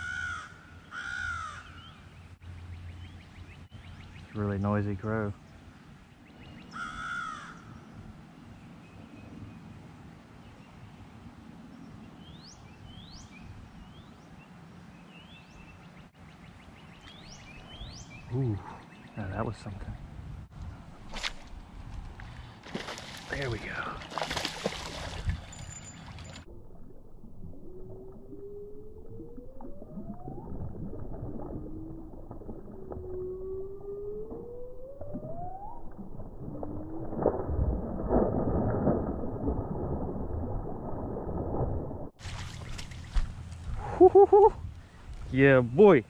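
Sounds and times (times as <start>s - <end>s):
outdoor background noise: 0.0s - 46.0s
songbird whistling rising notes: 15.0s - 19.2s
fish splashing in water: 22.2s - 26.4s, 42.2s - 43.7s.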